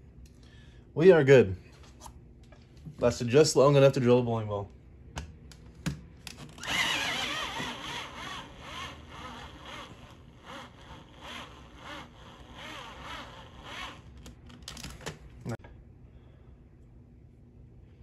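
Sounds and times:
cordless drill whining: 6.5 - 14.4.

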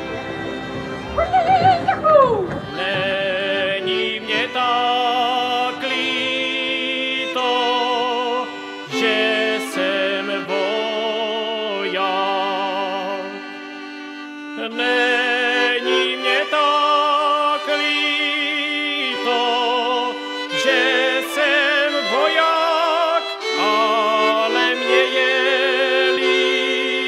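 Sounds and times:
men singing folk song: 0.0 - 27.0
string band playing: 0.0 - 27.0
shouted whoop: 1.2 - 2.4.

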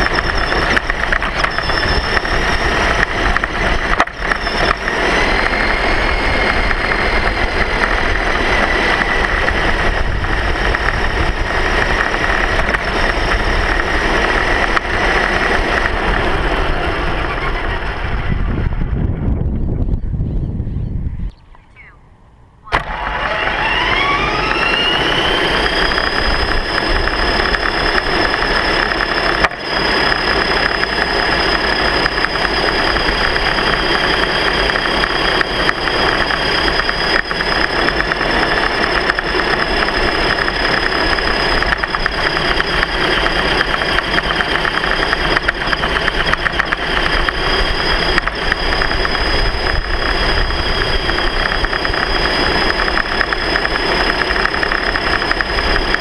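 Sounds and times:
vehicle motor whining: 0.0 - 19.1, 21.4 - 56.0.

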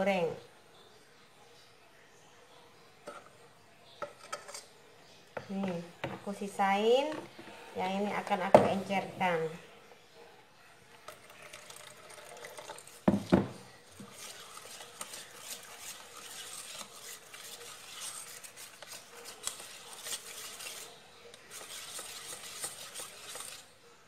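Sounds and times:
whisk scraping metal bowl: 4.0 - 4.7, 11.1 - 23.8.

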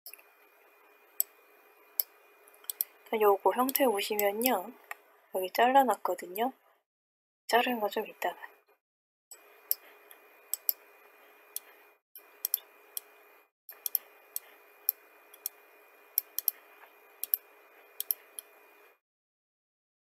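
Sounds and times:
computer mouse clicking: 2.0 - 2.9, 3.7 - 5.0, 10.5 - 10.8, 12.4 - 13.1, 13.7 - 15.6, 16.2 - 16.6, 17.2 - 17.4, 18.0 - 18.6.

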